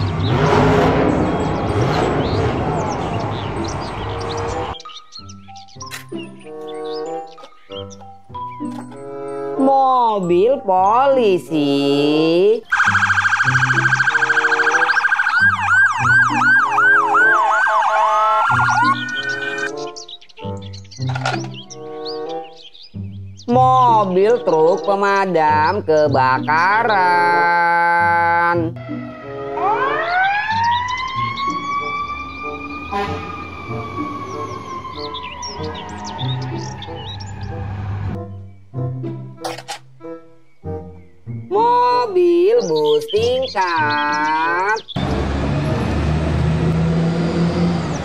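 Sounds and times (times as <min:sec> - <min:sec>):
emergency vehicle sirens: 0:00.0 - 0:04.8, 0:12.7 - 0:19.8, 0:28.8 - 0:38.2, 0:44.9 - 0:48.0
background music: 0:00.0 - 0:48.0.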